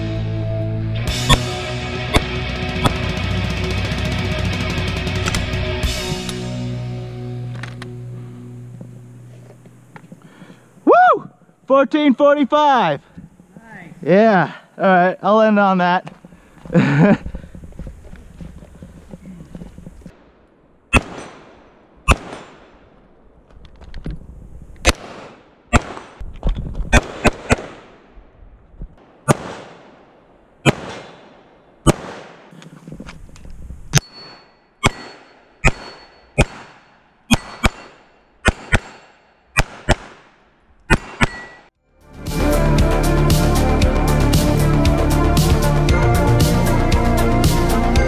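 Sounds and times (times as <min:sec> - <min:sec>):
pistol shots with echo: 0:20.9 - 0:22.8, 0:24.8 - 0:26.2, 0:27.0 - 0:28.1, 0:29.0 - 0:32.6, 0:34.0 - 0:41.6.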